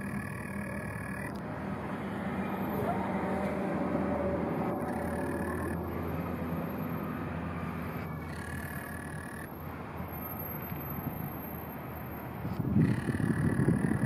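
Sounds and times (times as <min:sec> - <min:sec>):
low outdoor rumble: 0:00.0 - 0:08.8
constant low hum: 0:00.0 - 0:14.0.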